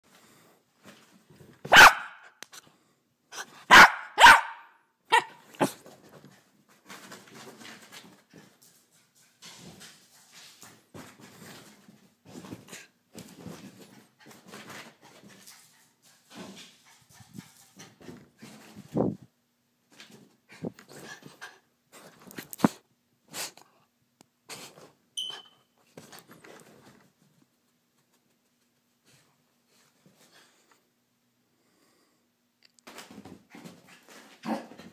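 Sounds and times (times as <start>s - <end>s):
puppy barking: 1.7s - 2.4s, 3.4s - 5.8s
high squeak: 25.2s - 25.6s.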